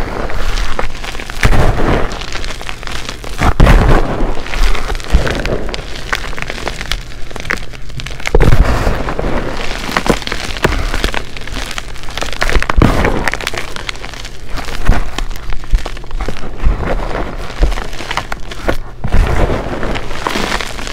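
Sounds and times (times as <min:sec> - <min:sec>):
chalk crunching and crackling: 0:00.0 - 0:20.9
heavy thumps: 0:01.3 - 0:02.4, 0:03.2 - 0:06.6.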